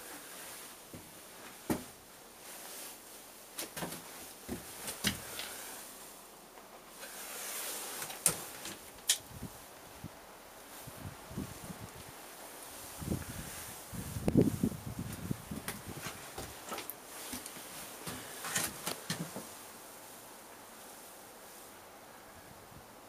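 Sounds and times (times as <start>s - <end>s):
low hiss: 0.0s - 23.0s.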